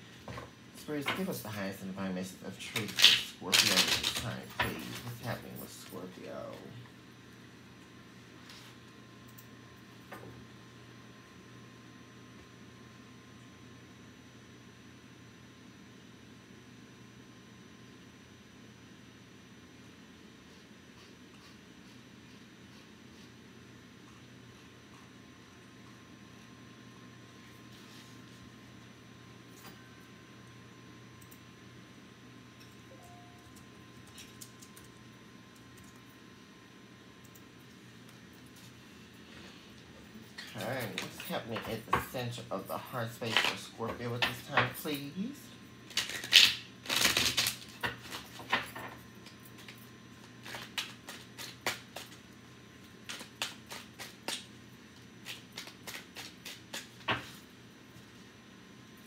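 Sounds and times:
steady electrical hum: 0.0s - 59.0s
cards being shuffled: 2.7s - 5.7s, 49.5s - 52.2s, 55.2s - 57.4s.

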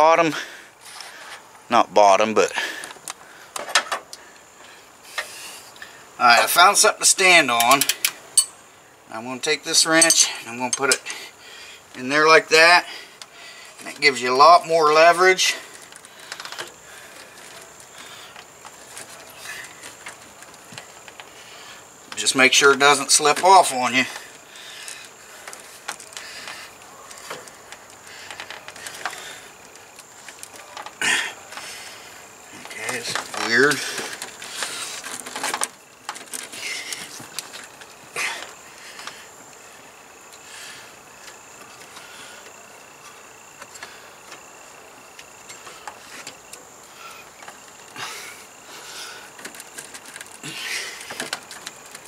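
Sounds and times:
light scraping of rubber belt: 12.0s - 39.8s, 40.4s - 52.0s
rustling: 15.2s - 52.0s.

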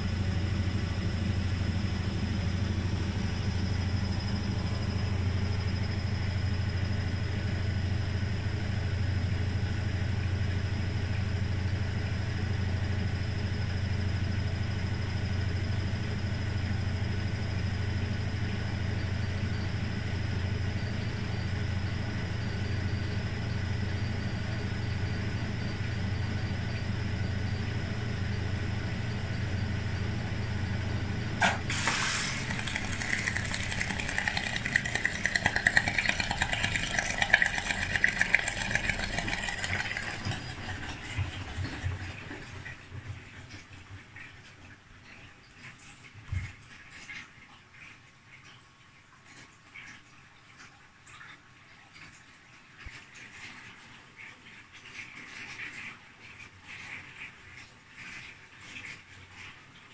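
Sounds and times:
washing machine humming: 0.0s - 59.9s
washing machine rattling: 31.4s - 44.6s.

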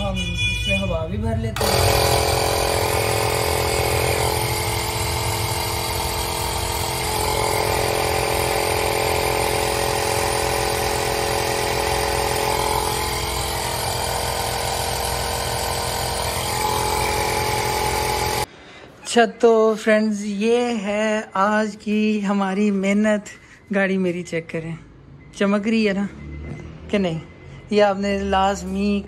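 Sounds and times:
electric tyre inflator running: 1.6s - 18.5s.

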